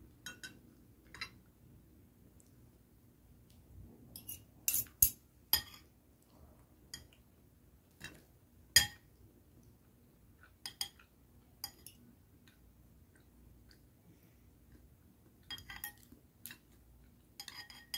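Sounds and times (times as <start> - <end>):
metal fork clinking against dish: 4.2 - 5.9, 15.5 - 16.1, 17.4 - 17.9.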